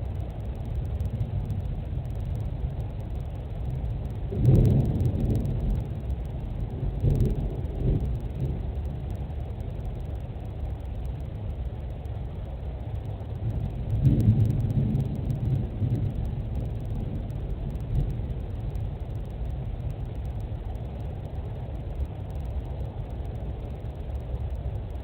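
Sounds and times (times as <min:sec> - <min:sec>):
thunder rumbling: 0:00.0 - 0:10.2, 0:13.3 - 0:20.4.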